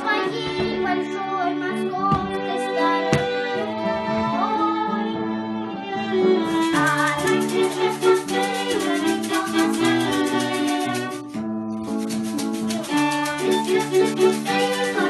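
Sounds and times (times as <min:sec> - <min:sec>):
upright piano playing: 0:00.0 - 0:15.0
violins playing: 0:00.0 - 0:15.0
hand shaker rhythm: 0:06.4 - 0:15.0.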